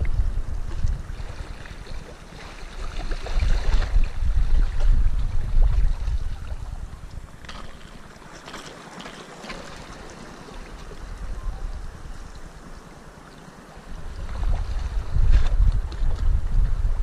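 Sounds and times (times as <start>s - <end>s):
wind on microphone: 0.0s - 8.1s, 10.6s - 13.0s, 13.8s - 17.0s
water washing against rocks: 7.2s - 11.3s.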